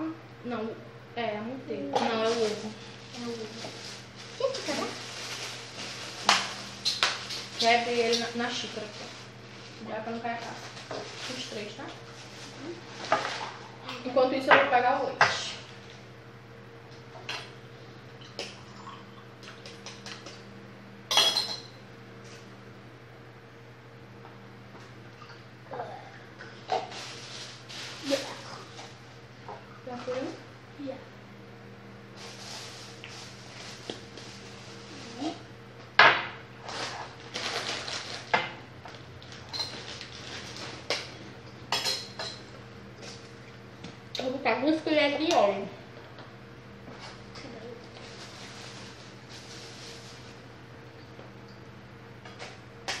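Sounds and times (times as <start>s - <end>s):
steady low hum: 0.0s - 53.0s
dishes clinking and clattering: 21.1s - 21.8s, 41.7s - 42.5s.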